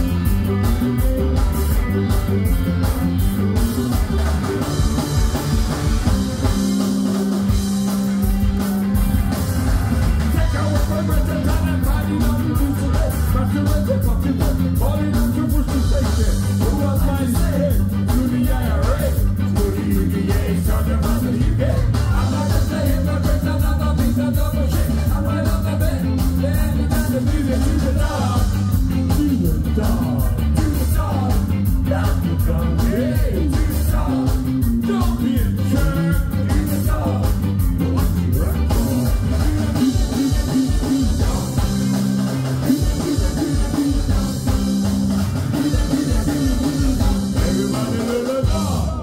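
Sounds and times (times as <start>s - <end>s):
live ska band playing: 0.0s - 49.0s
person singing: 10.2s - 44.7s, 45.5s - 49.0s.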